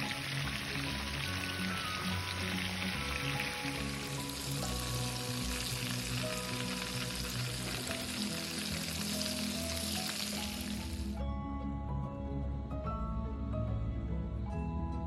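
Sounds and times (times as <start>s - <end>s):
pork chops sizzling in oil: 0.0s - 11.2s.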